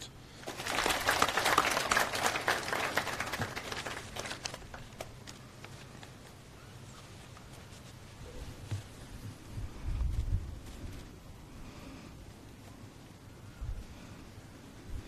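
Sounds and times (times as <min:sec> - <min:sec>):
audience applauding: 0:00.4 - 0:05.1.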